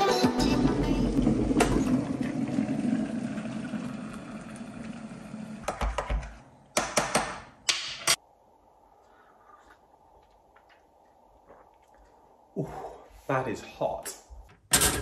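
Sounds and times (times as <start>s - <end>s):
hot water pouring into a mug: 1.2s - 5.7s.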